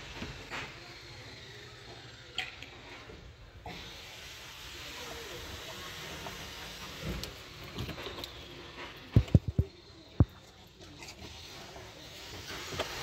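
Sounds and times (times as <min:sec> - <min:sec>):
steady hiss: 0:03.6 - 0:07.9, 0:11.4 - 0:13.0
rubber hoses and plastic knocking: 0:09.1 - 0:10.4.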